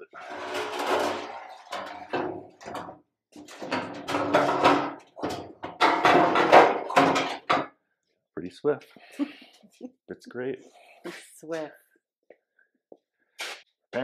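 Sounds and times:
metal panel scraping and knocking: 0.2s - 7.6s.

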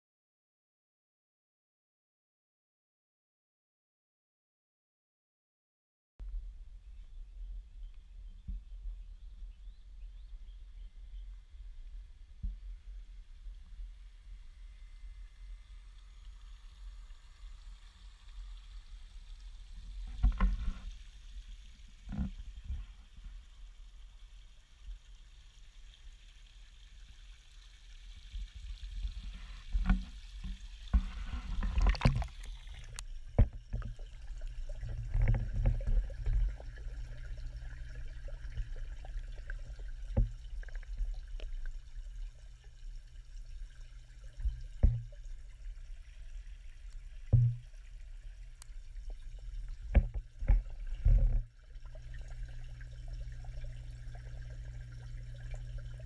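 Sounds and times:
muffled underwater rumble: 6.2s - 25.6s, 27.7s - 56.0s
underwater knocks and thumps: 20.0s - 20.9s, 22.1s - 22.9s, 29.2s - 38.8s, 39.4s - 41.5s, 44.4s - 45.3s, 47.3s - 47.8s, 49.7s - 52.2s
water splashing: 29.1s - 42.8s.

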